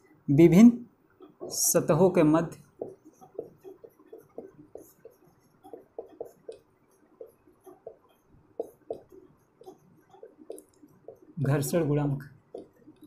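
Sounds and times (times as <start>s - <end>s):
chalk tapping and scraping on board: 2.7s - 11.8s, 12.5s - 13.0s.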